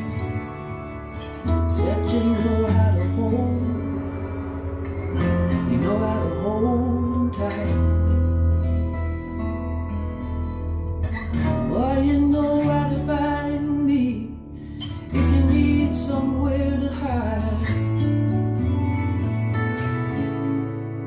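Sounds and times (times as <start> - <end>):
acoustic guitar melody: 0.0 - 21.0
steady bass: 0.0 - 21.0.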